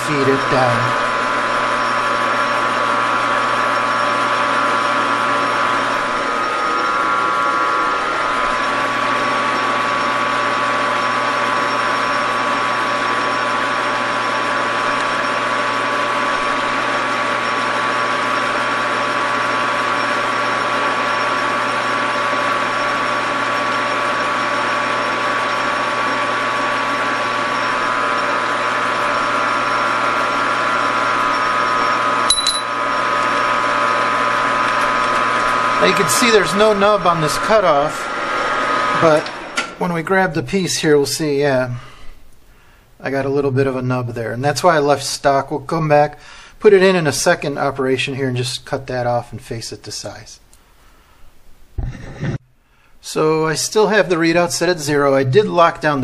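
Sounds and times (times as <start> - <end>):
high whining tones: 0.0 - 13.5, 53.1 - 56.0
metal lathe whirring: 0.0 - 41.0.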